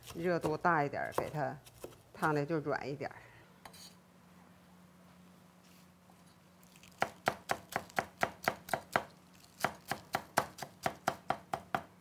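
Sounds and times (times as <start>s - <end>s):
cleaver chopping on wooden board: 7.0s - 11.9s.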